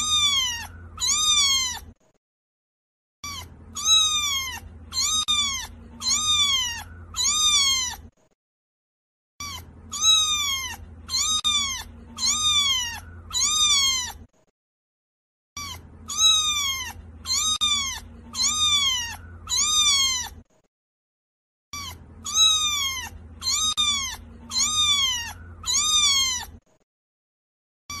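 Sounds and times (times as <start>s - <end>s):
kitten meowing: 0.0s - 2.0s, 3.2s - 8.1s, 9.4s - 14.3s, 15.6s - 20.4s, 21.7s - 26.6s.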